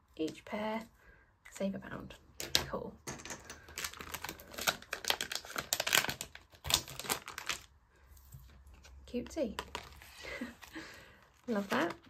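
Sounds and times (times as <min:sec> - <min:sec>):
plastic pouch crinkling: 0:03.3 - 0:07.8, 0:09.5 - 0:12.0.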